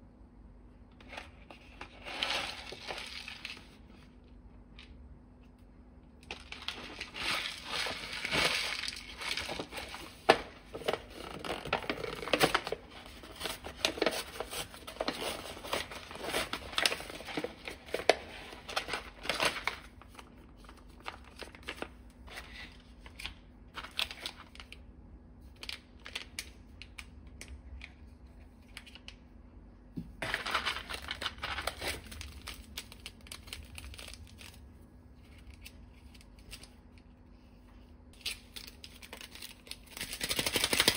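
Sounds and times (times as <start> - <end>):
foil lid and sachets crinkling: 6.2 - 24.8, 30.2 - 34.7, 38.2 - 40.9.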